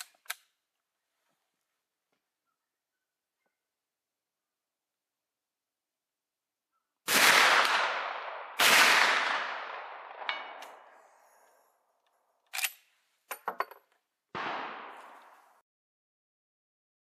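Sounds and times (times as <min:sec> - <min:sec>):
rifle shots echoing: 0:07.1 - 0:11.0, 0:14.3 - 0:15.6.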